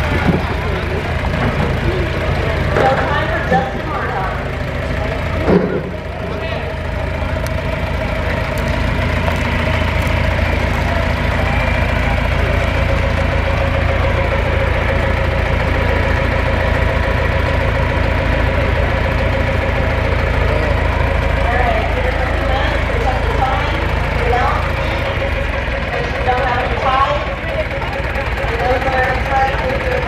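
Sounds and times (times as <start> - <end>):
tractor engine running: 0.0 - 30.0.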